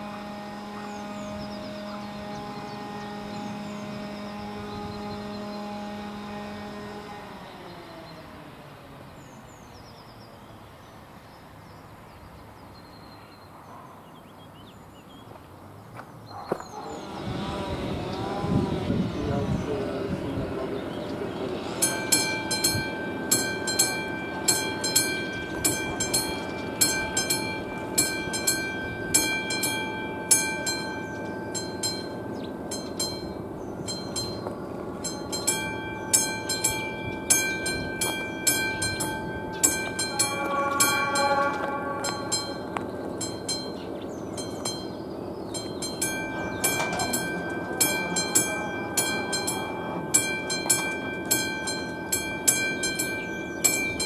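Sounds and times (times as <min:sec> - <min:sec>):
train horn: 0:00.0 - 0:08.2, 0:16.8 - 0:32.5, 0:35.6 - 0:43.8, 0:46.0 - 0:53.5
level crossing warning bell: 0:19.6 - 0:54.0.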